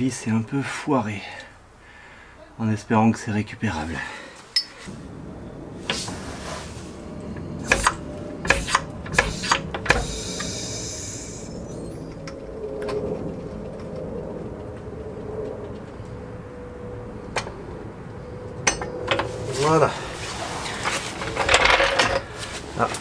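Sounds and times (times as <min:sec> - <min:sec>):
metal tools clanking: 0:04.5 - 0:04.9, 0:18.6 - 0:19.3, 0:20.6 - 0:23.0
metal scrape: 0:05.8 - 0:07.1
hiss: 0:08.5 - 0:11.6.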